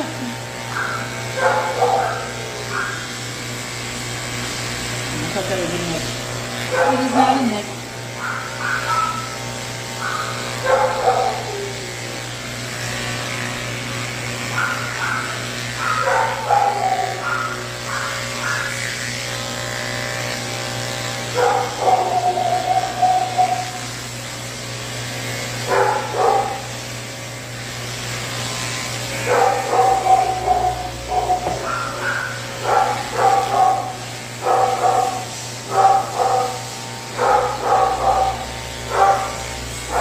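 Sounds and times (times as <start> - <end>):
pet clippers humming: 0.0 - 40.0
dog barking: 0.7 - 3.1, 6.7 - 7.2, 8.2 - 9.4, 10.0 - 11.8, 14.5 - 18.8, 21.4 - 23.8, 25.7 - 26.7, 29.2 - 40.0
dog whining: 8.2 - 9.4, 10.0 - 12.2, 14.5 - 18.8, 21.4 - 23.9, 29.3 - 36.6.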